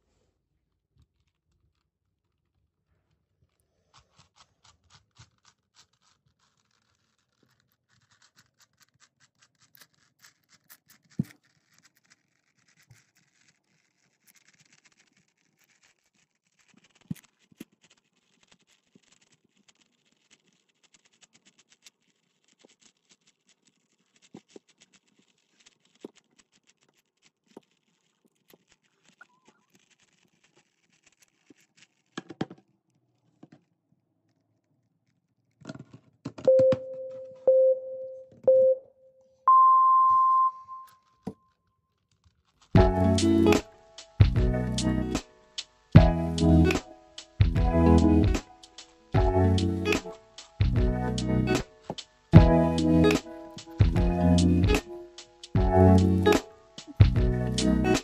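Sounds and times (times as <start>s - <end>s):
puzzle cube layers clicking: 2.6s - 32.6s.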